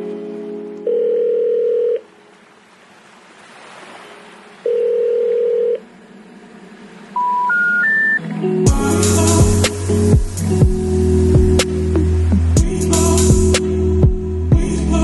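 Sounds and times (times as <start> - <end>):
telephone ringback tone: 0.8 - 2.0, 4.7 - 5.8, 7.2 - 8.2
rising telephone beeps: 4.7 - 5.8, 7.2 - 8.2.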